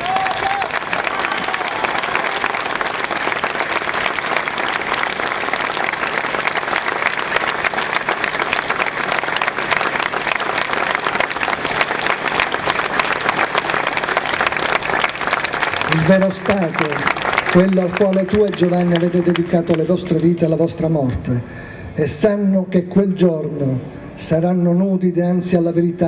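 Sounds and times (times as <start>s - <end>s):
crowd applauding: 0.0s - 20.8s.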